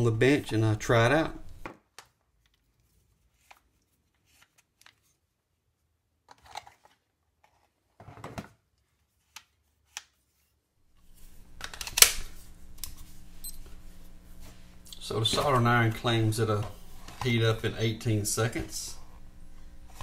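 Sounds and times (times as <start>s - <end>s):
low steady hum: 0.0s - 1.7s, 10.8s - 20.0s.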